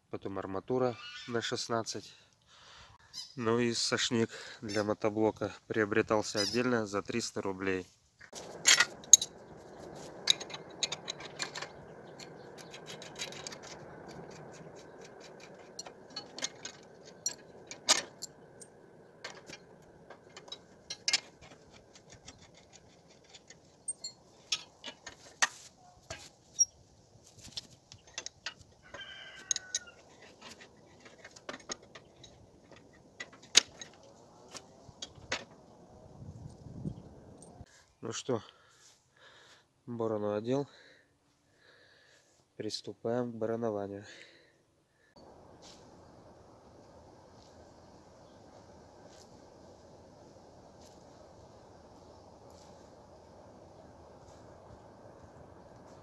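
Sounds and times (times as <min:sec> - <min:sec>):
metal implements clinking: 0:08.4 - 0:26.7, 0:29.4 - 0:35.6.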